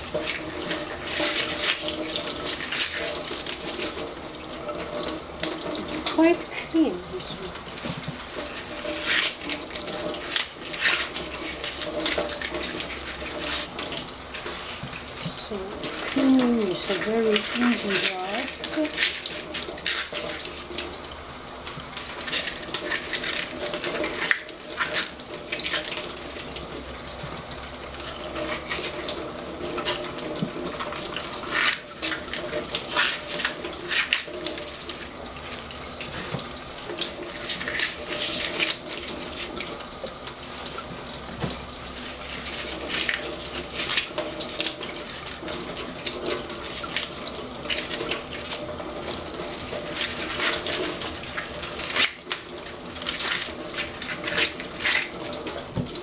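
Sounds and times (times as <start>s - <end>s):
tap water running into sink: 0.0s - 56.0s
splashes and knocks: 36.0s - 48.6s, 49.4s - 56.0s.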